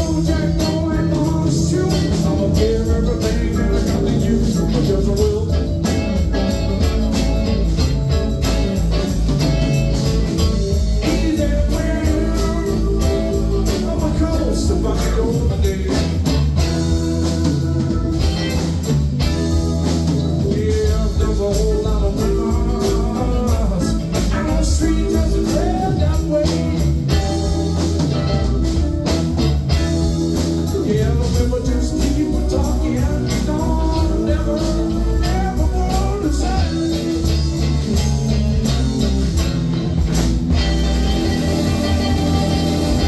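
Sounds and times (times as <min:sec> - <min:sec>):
person singing: 0:00.0 - 0:07.0, 0:11.0 - 0:18.8, 0:19.8 - 0:28.0, 0:30.4 - 0:38.8
rock band playing: 0:00.0 - 0:43.0.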